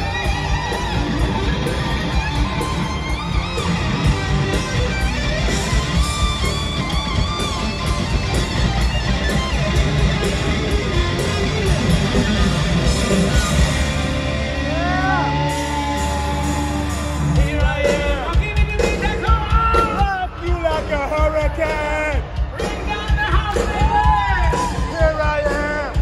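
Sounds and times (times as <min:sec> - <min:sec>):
hard rock band playing live: 0:00.0 - 0:26.0
person singing or shouting: 0:14.6 - 0:26.0.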